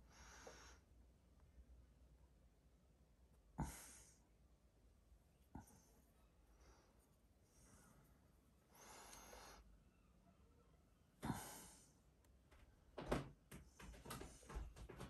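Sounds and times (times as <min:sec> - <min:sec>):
person breathing softly: 0:00.0 - 0:01.0, 0:03.6 - 0:04.3, 0:05.6 - 0:09.9, 0:11.2 - 0:12.1.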